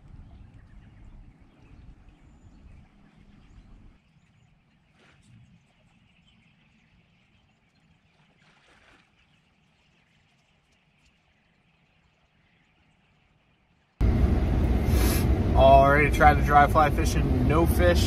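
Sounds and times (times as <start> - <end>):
faint river flowing: 0.0 - 14.0.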